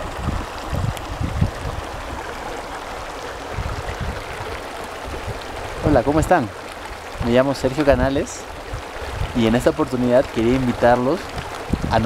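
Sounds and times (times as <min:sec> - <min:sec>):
stream rushing over stones: 0:00.0 - 0:12.0.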